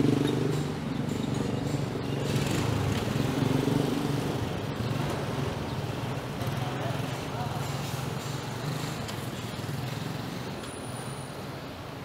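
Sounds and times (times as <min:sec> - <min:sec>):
street traffic noise: 0:00.0 - 0:12.0.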